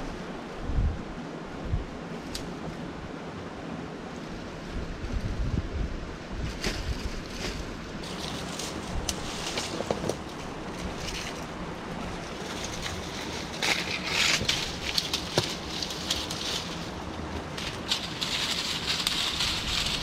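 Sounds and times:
dry branches rustling and crackling: 0:00.0 - 0:20.0
wind noise: 0:00.0 - 0:20.0
branch snapping: 0:02.2 - 0:02.5, 0:12.7 - 0:16.8.

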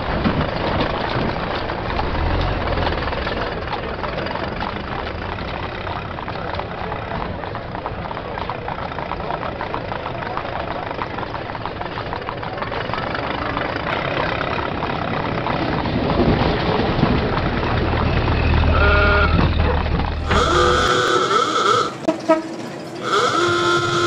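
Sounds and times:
vehicle engine rumble: 0:00.0 - 0:24.0
brief pitched tone: 0:20.2 - 0:22.4.

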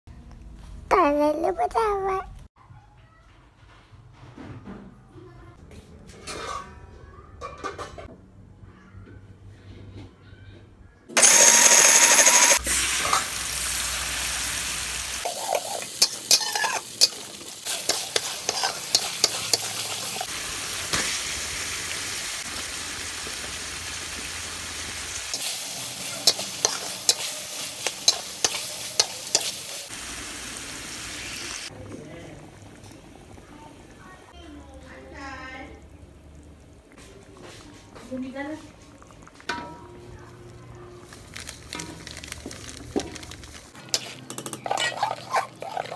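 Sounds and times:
blender running: 0:11.2 - 0:12.7
paste sizzling in hot oil: 0:11.2 - 0:31.7, 0:41.1 - 0:45.9
spatula clinking and scraping: 0:15.2 - 0:20.3, 0:25.3 - 0:29.9, 0:41.2 - 0:45.9.

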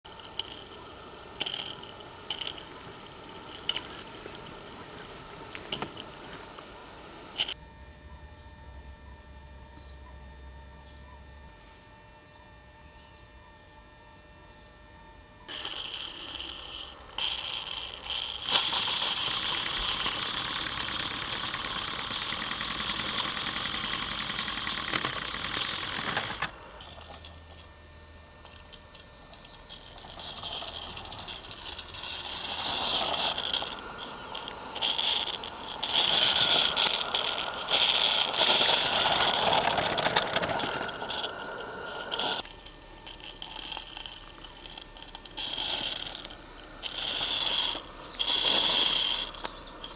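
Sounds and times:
rattling: 0:00.0 - 0:06.6, 0:15.5 - 0:27.4, 0:28.6 - 0:49.9
steam locomotive hissing: 0:29.8 - 0:42.4.

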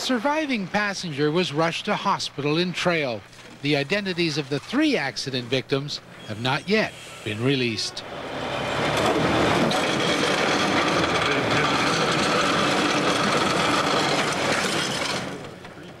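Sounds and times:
tow truck mechanical noise: 0:00.0 - 0:16.0.

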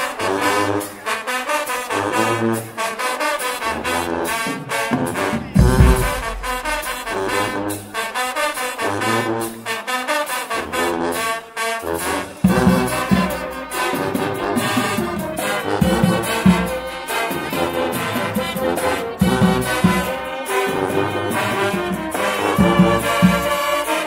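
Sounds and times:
brass band playing: 0:00.0 - 0:24.0
low drum beat: 0:05.5 - 0:07.6.

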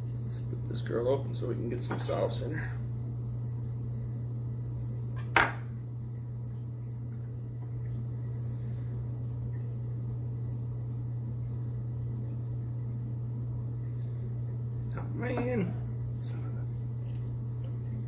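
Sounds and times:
low hum: 0:00.0 - 0:18.0
knife set down on wooden board: 0:05.2 - 0:05.6.

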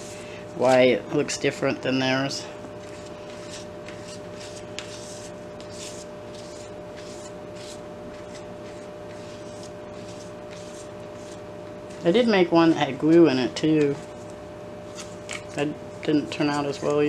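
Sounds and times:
palette knife scraping paint on paper: 0:02.8 - 0:12.4, 0:14.9 - 0:17.0.

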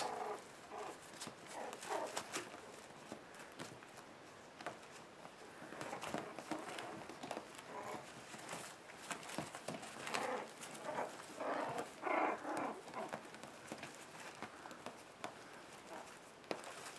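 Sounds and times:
paws scuffling on bedding: 0:00.0 - 0:16.9
puppies yipping: 0:05.7 - 0:14.7.

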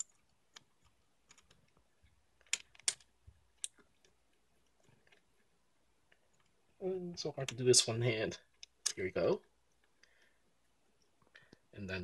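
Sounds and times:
plastic toy parts clicking: 0:02.4 - 0:04.2.

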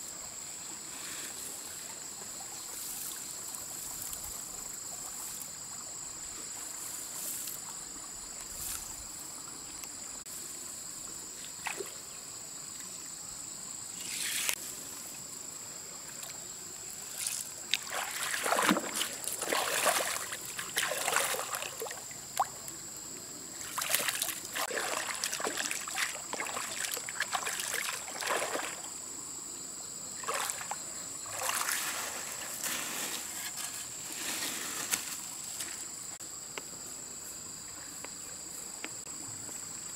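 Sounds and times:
insects chirring: 0:00.0 - 0:39.9
water splashing in a stream: 0:01.6 - 0:08.1, 0:11.4 - 0:12.1, 0:16.1 - 0:22.8, 0:23.5 - 0:29.0, 0:30.2 - 0:35.8.

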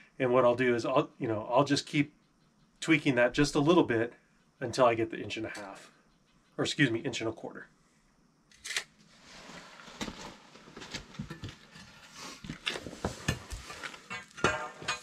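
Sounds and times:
metal clanks with ring: 0:14.1 - 0:15.0.

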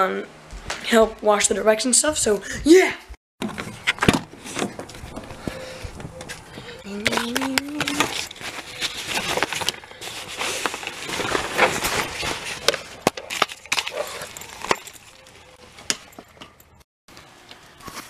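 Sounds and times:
suitcase fabric rustling: 0:07.0 - 0:13.0.

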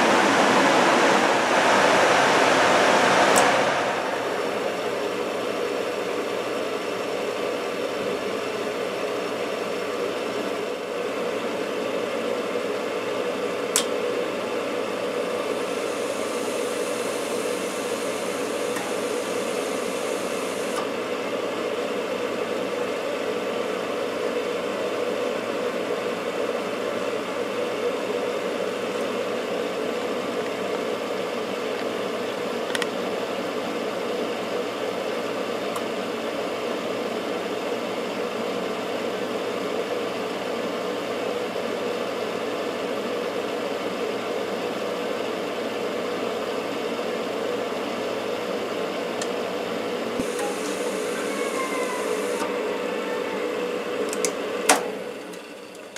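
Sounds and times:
furnace motor humming: 0:15.4 - 0:21.0, 0:50.2 - 0:55.9.

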